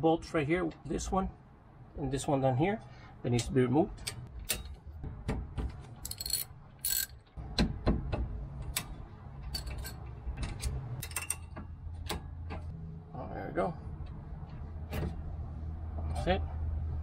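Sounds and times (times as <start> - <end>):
socket wrench clicking: 6.0 - 7.2
socket wrench rasps: 6.0 - 7.2.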